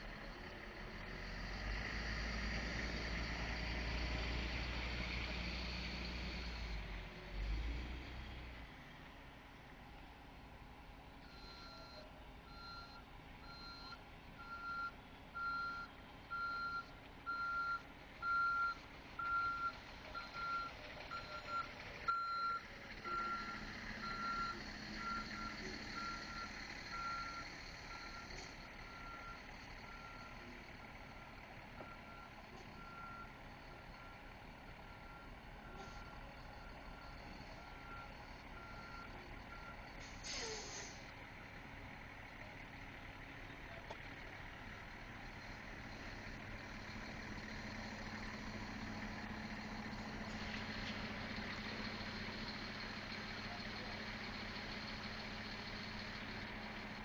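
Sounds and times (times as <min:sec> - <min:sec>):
truck reversing alarm beeping: 0:00.0 - 0:07.8, 0:11.2 - 0:43.2, 0:44.1 - 0:57.0
low engine rumble: 0:00.0 - 0:57.0
short hiss: 0:40.1 - 0:41.0.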